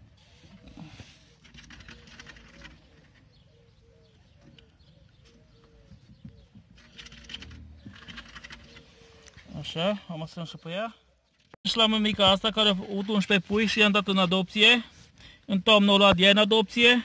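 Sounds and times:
bird cooing: 0.8s - 9.4s.

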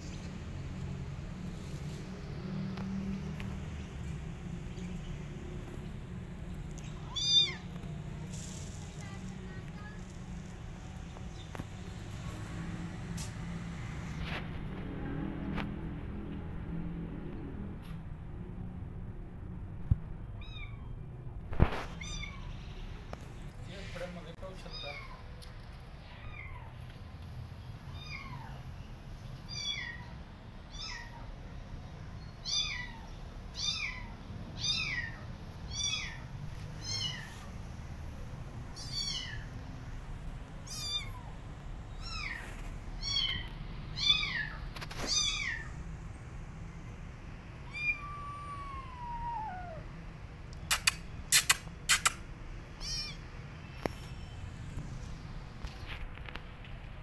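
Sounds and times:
kitten meowing: 6.9s - 7.7s, 20.4s - 21.0s, 22.0s - 22.5s, 33.6s - 37.3s, 38.8s - 39.5s, 40.6s - 41.4s, 43.0s - 45.7s, 47.7s - 49.8s, 52.8s - 53.3s
sharp clicks: 50.5s - 52.2s.

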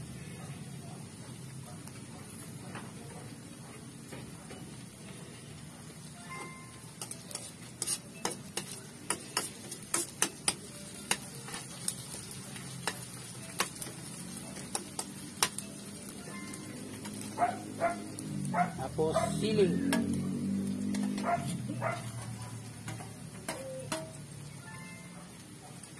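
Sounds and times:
food sizzling in hot oil: 0.0s - 25.9s
metal spoon scraping a wok: 6.9s - 11.9s, 20.7s - 24.2s.

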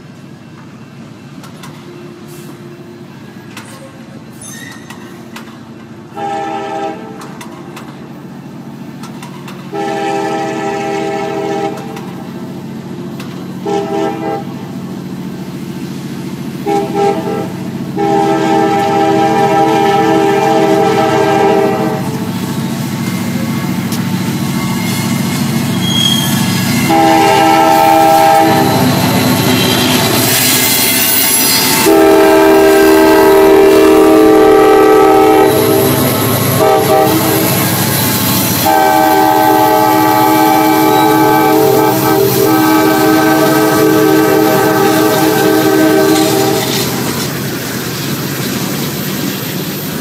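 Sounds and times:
low rumble of train: 0.0s - 50.0s
locomotive horn blast: 6.1s - 7.2s, 9.7s - 12.0s, 13.6s - 14.6s, 16.6s - 22.3s, 25.8s - 29.0s, 30.4s - 37.8s, 38.6s - 47.0s.

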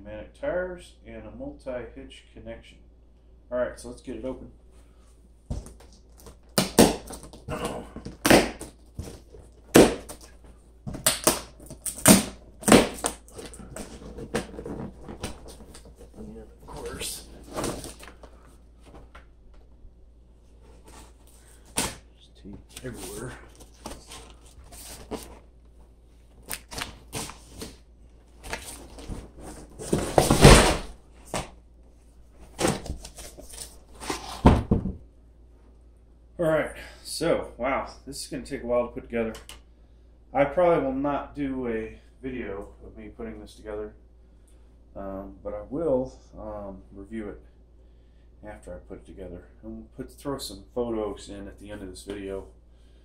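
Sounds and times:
plastic straps snapping on cardboard: 8.0s - 10.3s, 10.9s - 13.5s
rustling: 11.5s - 19.2s, 22.6s - 34.5s.

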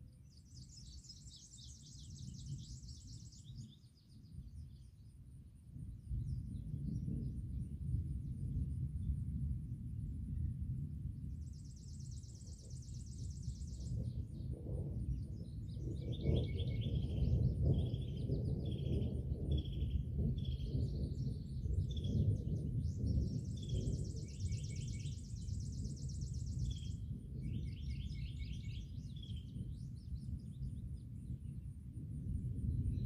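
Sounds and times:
birds singing and trilling: 0.2s - 4.9s, 11.3s - 31.7s
distant thunder rumbling: 6.2s - 33.0s.

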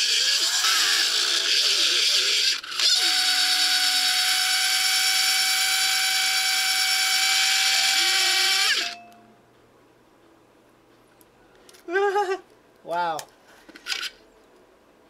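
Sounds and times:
hard drive mechanical screech: 0.0s - 9.0s
hard drive whine: 0.0s - 9.6s.

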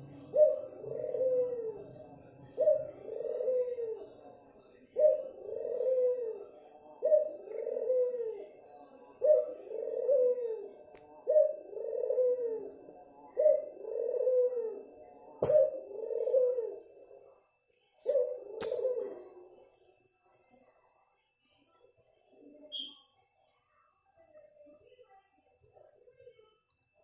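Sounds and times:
dove cooing: 0.0s - 17.4s, 18.0s - 19.6s.

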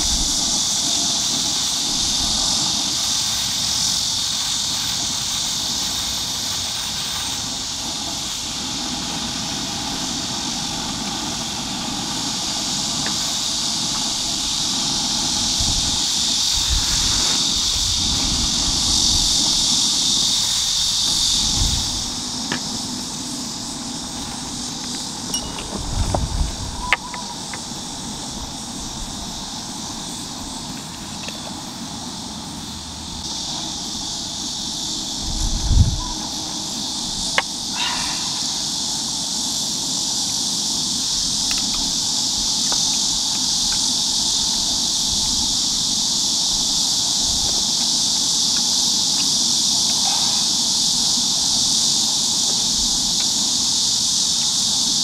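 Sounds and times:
insect chorus drone: 0.0s - 55.0s
light clicks and clinks: 25.3s - 25.8s.

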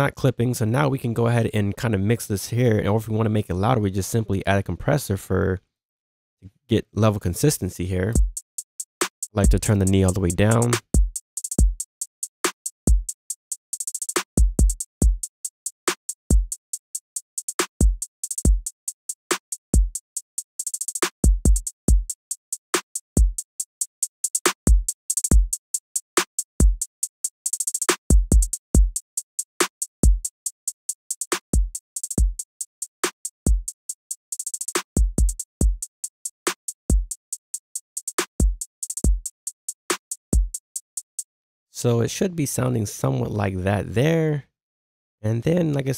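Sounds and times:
fast hi-hats with rolls: 9.1s - 11.9s
snare drum: 9.3s - 11.8s.

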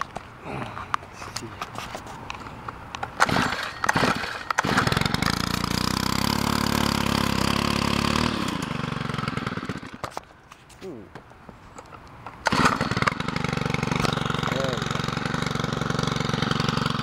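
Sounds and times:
starter rope pulled: 0.0s - 11.0s, 12.4s - 17.0s
small engine running: 3.2s - 10.0s, 12.4s - 17.0s.

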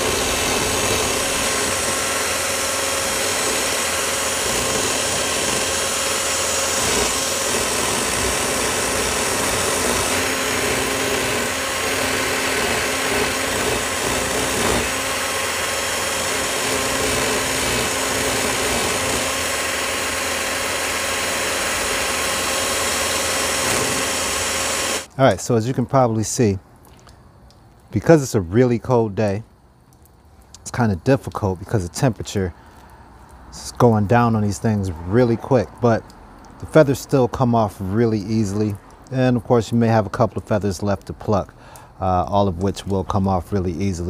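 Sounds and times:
cordless drill running: 0.0s - 25.1s.

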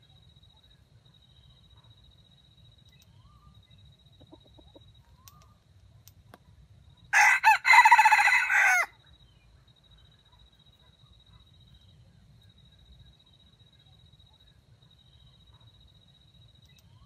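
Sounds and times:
rooster crowing: 7.1s - 9.0s.

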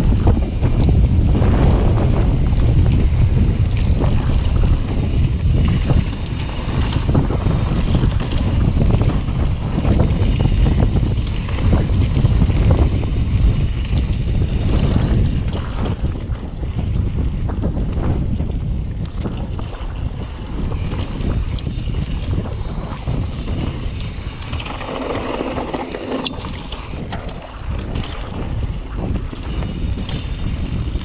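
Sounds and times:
bike knocks and rattles: 0.0s - 31.0s
wind buffeting microphone: 0.0s - 31.0s
tyre noise on dirt: 20.7s - 27.2s.

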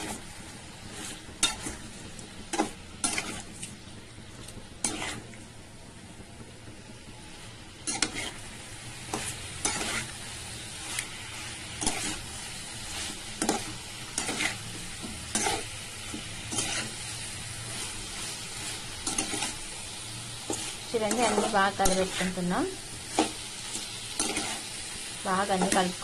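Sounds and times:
curry sizzling: 0.0s - 26.0s
spatula scraping metal pan: 0.8s - 1.9s, 2.5s - 3.7s, 4.8s - 5.3s, 7.8s - 8.4s, 9.0s - 10.2s, 10.8s - 19.7s, 20.4s - 22.5s, 23.1s - 24.8s.

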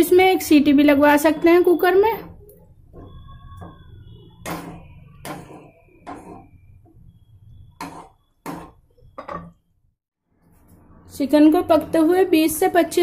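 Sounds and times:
wooden spatula scraping a pan: 1.2s - 9.5s.

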